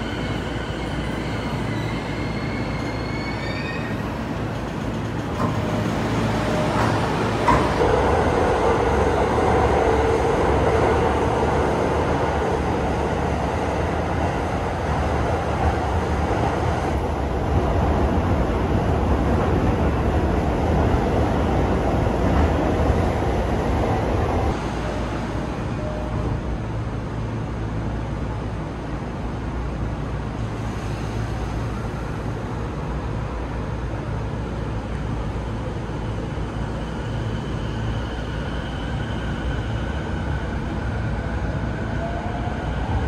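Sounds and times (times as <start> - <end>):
train wheels on rails: 0.0 - 25.4.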